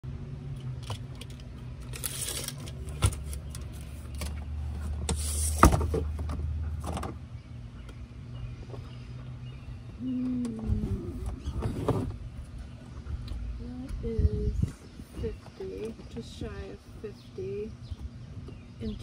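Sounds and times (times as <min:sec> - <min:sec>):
tape measure blade pulled out: 0:01.8 - 0:03.4
low rumble: 0:08.6 - 0:17.1.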